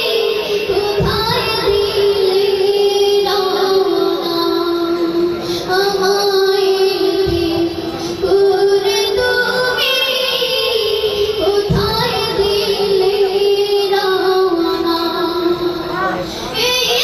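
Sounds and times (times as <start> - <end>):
boy singing into a microphone: 0.0 - 17.0.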